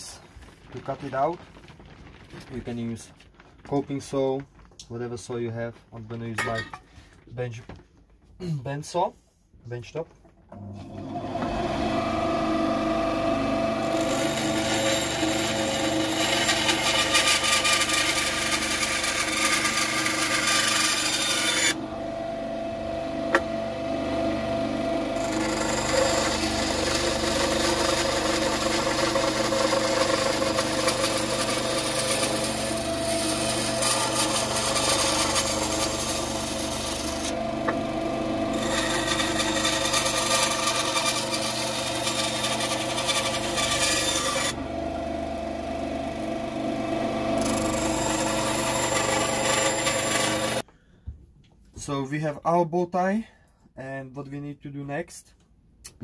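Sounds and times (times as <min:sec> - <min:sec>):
bandsaw motor running: 0:10.9 - 0:50.6
bandsaw blade cutting wood: 0:13.3 - 0:21.8, 0:25.1 - 0:44.7, 0:47.0 - 0:50.6.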